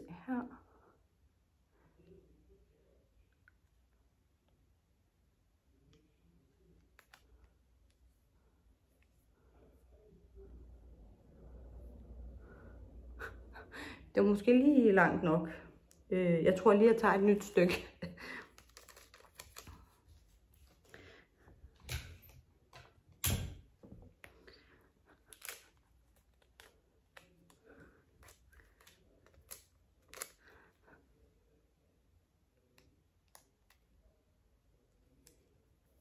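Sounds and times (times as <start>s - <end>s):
sticky tape crackling: 18.4s - 20.0s.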